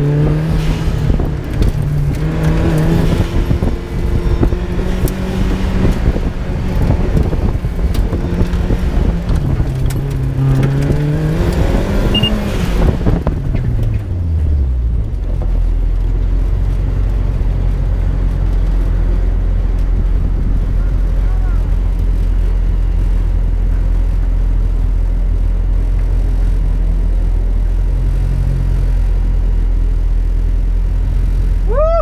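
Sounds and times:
car engine revving hard: 0:00.0 - 0:13.5.

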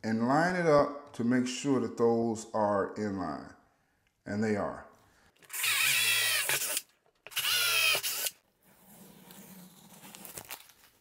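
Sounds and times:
cordless drill drilling wood: 0:05.5 - 0:08.4.

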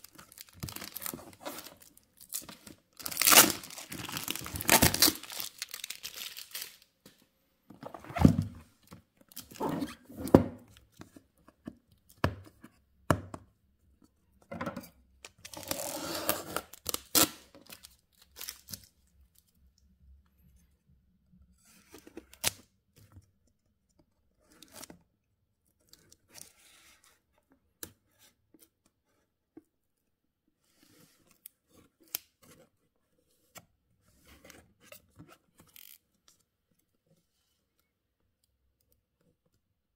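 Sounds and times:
box being handled: 0:00.0 - 0:06.8
packing tape ripping off box: 0:00.1 - 0:06.8, 0:15.4 - 0:17.8.

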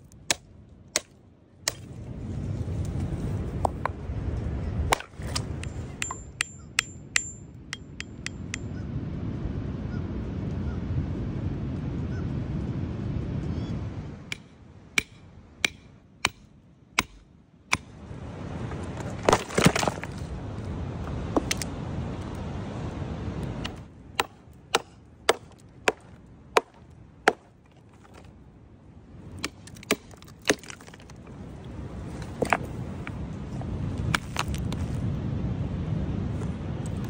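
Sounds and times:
low background rumble: 0:00.0 - 0:37.0
hammer tapping on rock: 0:06.0 - 0:08.7, 0:14.3 - 0:17.9.

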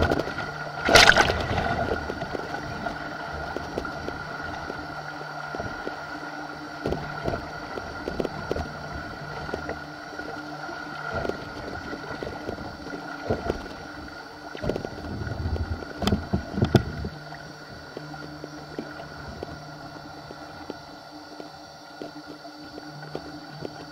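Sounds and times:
wind on microphone: 0:00.0 - 0:06.0, 0:14.6 - 0:17.9
faint steady hum: 0:00.0 - 0:23.9
water splashing against camera: 0:00.0 - 0:23.9.

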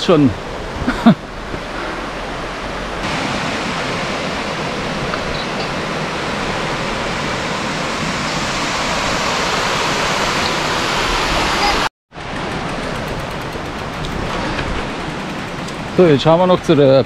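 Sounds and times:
waterfall rushing over rock: 0:03.0 - 0:11.9.

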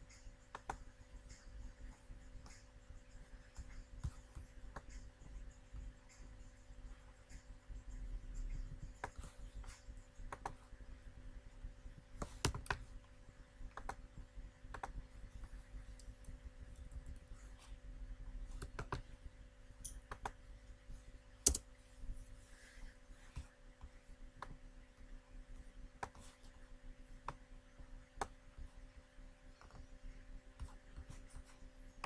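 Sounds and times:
faint electrical hum: 0:00.0 - 0:32.0
mouse and keyboard clicks: 0:21.4 - 0:21.7.

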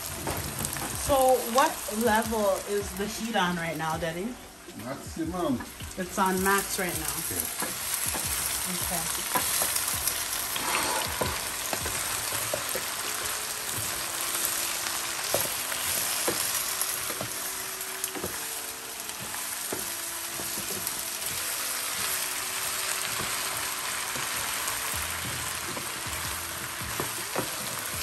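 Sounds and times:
vegetables sizzling in a pan: 0:00.0 - 0:28.0
wooden spoon knocking on pan: 0:07.6 - 0:09.9, 0:11.1 - 0:12.9, 0:18.2 - 0:18.4, 0:25.2 - 0:27.8.

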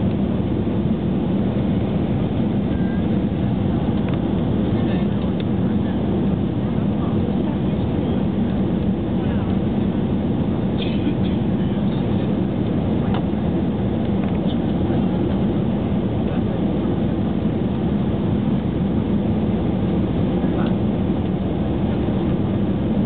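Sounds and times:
airliner engines roaring: 0:00.0 - 0:23.0.

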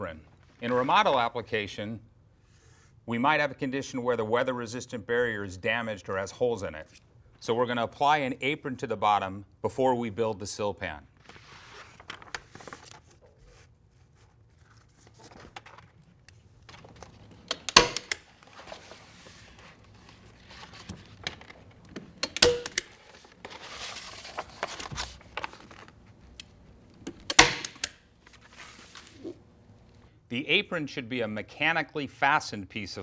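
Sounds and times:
stiff paper crinkling: 0:11.2 - 0:17.5, 0:18.3 - 0:22.0, 0:22.9 - 0:26.9, 0:28.2 - 0:30.0
staple gun snapping: 0:17.5 - 0:18.2, 0:22.2 - 0:22.9, 0:27.0 - 0:28.0.

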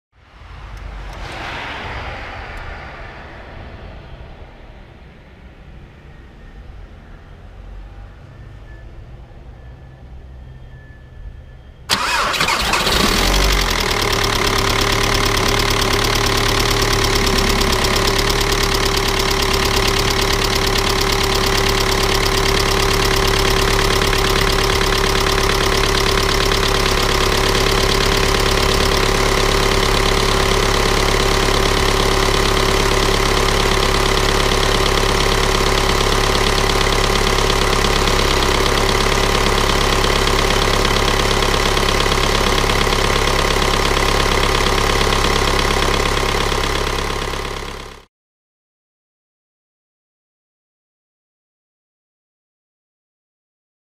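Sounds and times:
diesel engine idling: 0:11.9 - 0:48.0.

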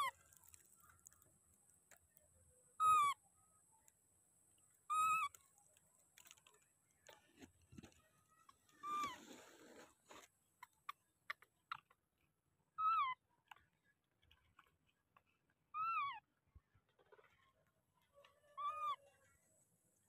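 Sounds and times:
infant monkey plaintive calls: 0:02.8 - 0:03.2, 0:04.9 - 0:05.4, 0:08.8 - 0:09.2, 0:12.8 - 0:13.2, 0:15.7 - 0:16.3, 0:18.4 - 0:19.1.

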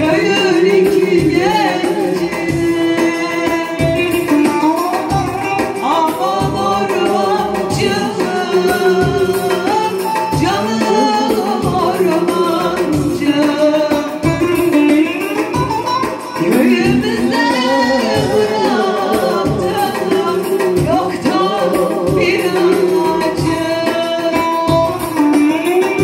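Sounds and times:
electronic keyboards: 0:00.0 - 0:26.0
steady drum beat: 0:00.0 - 0:26.0
woman singing into microphone: 0:00.0 - 0:26.0.

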